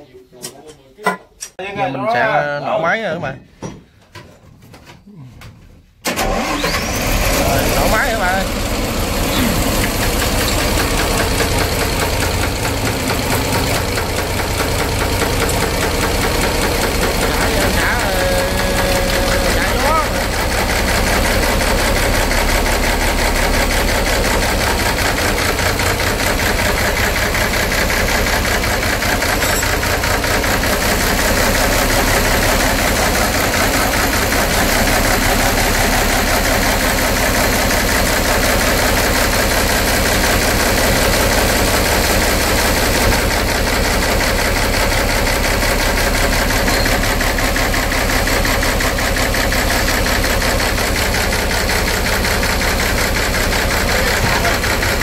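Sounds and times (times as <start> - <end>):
diesel engine running: 6.1 - 55.0.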